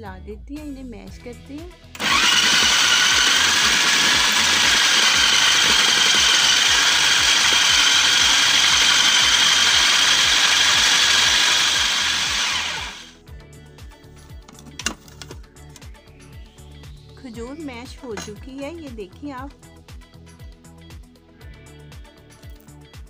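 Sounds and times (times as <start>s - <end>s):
food chopper motor whine: 2.0s - 13.2s.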